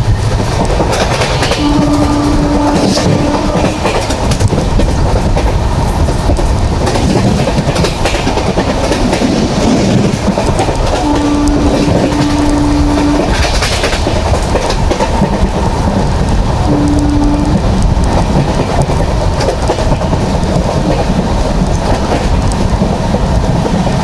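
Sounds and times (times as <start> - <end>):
train rumbling at speed: 0.0 - 24.0
wheels clicking over rail joints: 0.2 - 24.0
train horn low note: 1.6 - 4.0, 11.0 - 13.6, 16.7 - 17.6.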